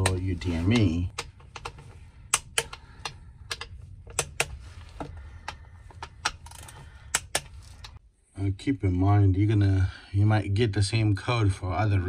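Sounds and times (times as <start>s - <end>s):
hand ratchet clicking: 5.4s - 8.0s.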